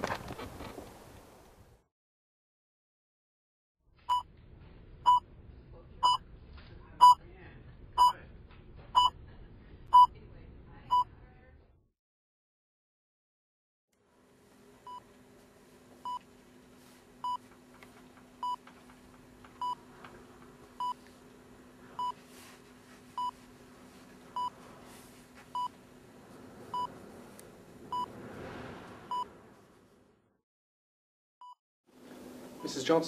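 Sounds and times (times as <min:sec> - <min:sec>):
heart monitor beeping: 0:05.1 - 0:05.3, 0:06.0 - 0:06.2, 0:09.0 - 0:09.2, 0:09.9 - 0:10.1, 0:16.0 - 0:16.3, 0:17.2 - 0:17.6, 0:18.4 - 0:18.8, 0:19.5 - 0:19.9, 0:20.8 - 0:21.0, 0:22.0 - 0:22.3, 0:23.1 - 0:23.4, 0:24.3 - 0:24.6, 0:25.5 - 0:25.8, 0:26.7 - 0:27.0.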